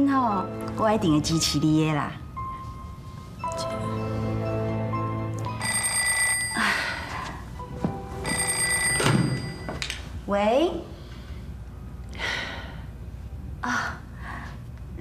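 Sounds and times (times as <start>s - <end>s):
background music notes: 0.0s - 5.6s
landline telephone ringing: 5.5s - 6.9s, 8.2s - 9.8s.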